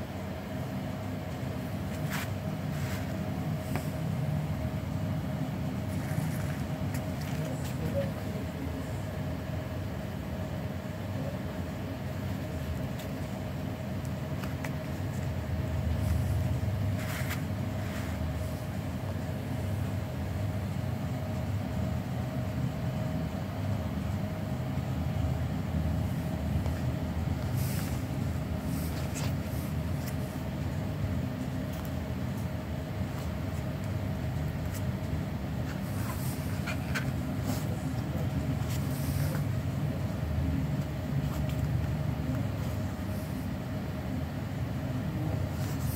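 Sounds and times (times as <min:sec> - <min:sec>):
faint constant hum: 0:00.0 - 0:45.9
low rumble of machinery: 0:00.0 - 0:45.9
sandals clicking and rustling: 0:01.8 - 0:04.4.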